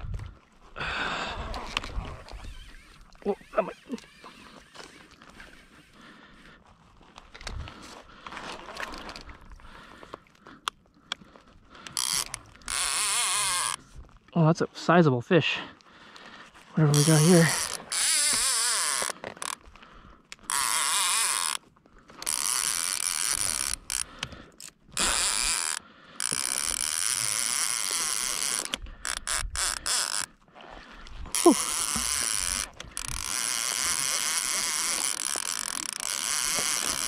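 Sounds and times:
fishing reel clicker ratcheting: 1.7s - 6.0s, 11.8s - 13.8s, 16.9s - 19.7s, 20.3s - 30.4s, 31.3s - 37.0s.

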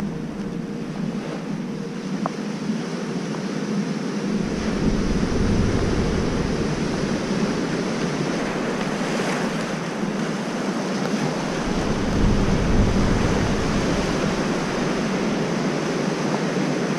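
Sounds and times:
wind rumbling on microphone: 0.0s - 16.9s
wave breaking and rushing: 4.3s - 16.9s.

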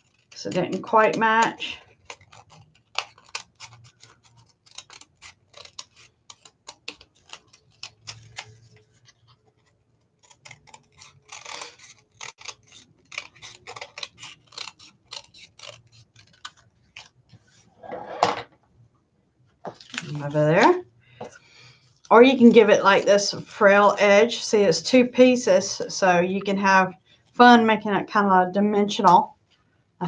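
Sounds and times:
scissors snipping paper: 0.0s - 17.2s.

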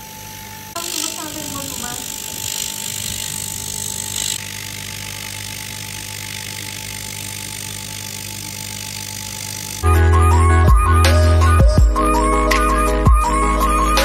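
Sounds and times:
cooling fans whirring: 0.0s - 9.9s
steady whine: 0.0s - 10.0s.

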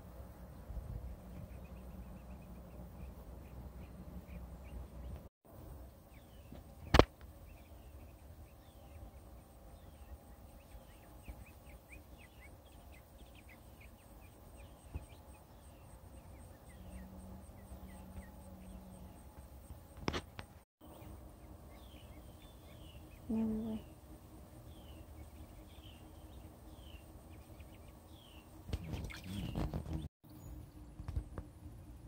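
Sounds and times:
small animals chirping: 21.9s - 24.0s.

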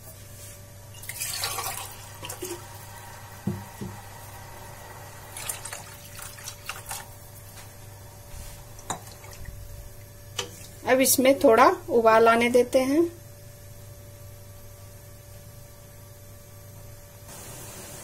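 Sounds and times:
water poured into a wok: 1.0s - 3.0s, 5.1s - 7.1s
low hum: 1.8s - 11.0s.

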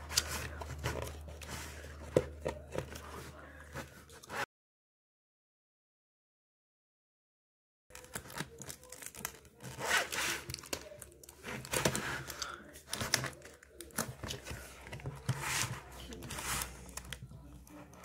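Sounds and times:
cardboard packaging tearing: 7.9s - 14.6s.

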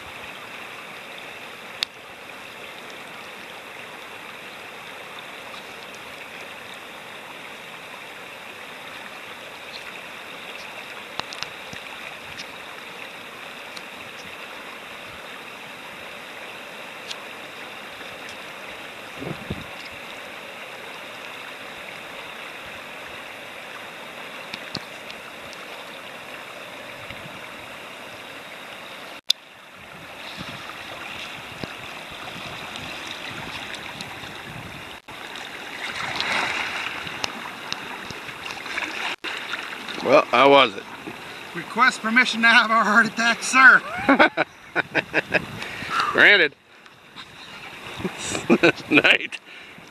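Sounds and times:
river rapids rushing: 30.0s - 44.4s.

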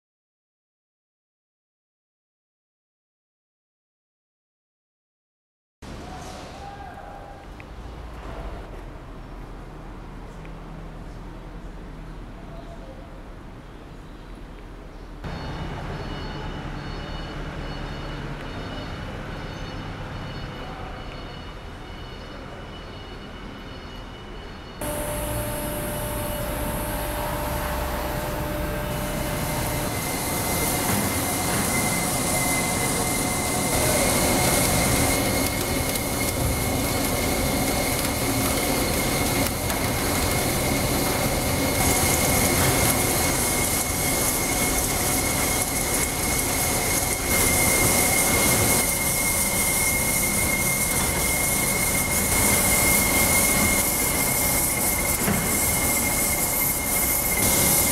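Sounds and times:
high thin whine: 24.8s - 57.9s
machine mechanical rush: 24.8s - 57.9s.

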